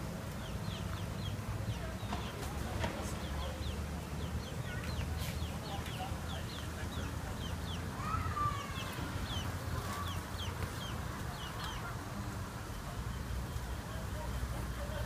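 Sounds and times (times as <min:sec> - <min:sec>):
chick peeping: 0:00.3 - 0:12.0.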